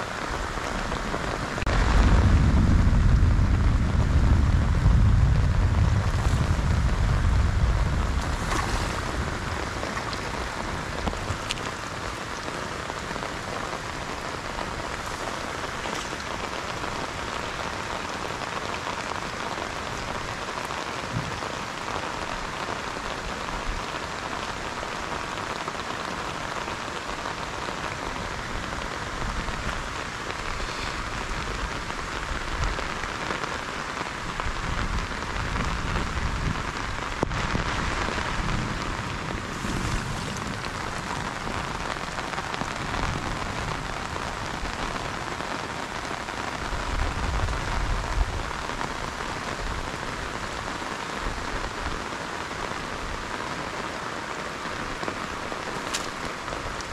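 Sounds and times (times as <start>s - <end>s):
heavy rain falling: 0.0s - 56.9s
low rumble: 1.7s - 11.6s.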